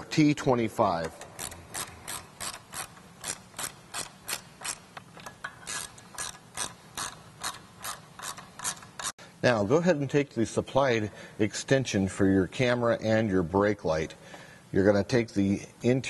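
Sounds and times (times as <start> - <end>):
ratcheting driver clicking: 1.0 - 9.1.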